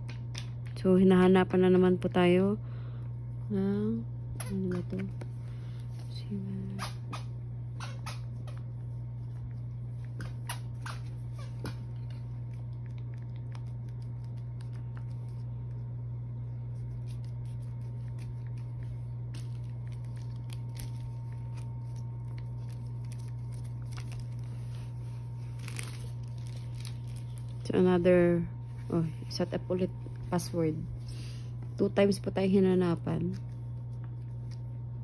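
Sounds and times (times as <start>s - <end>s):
low hum: 0.0s - 35.0s
paper rustling: 16.7s - 27.7s.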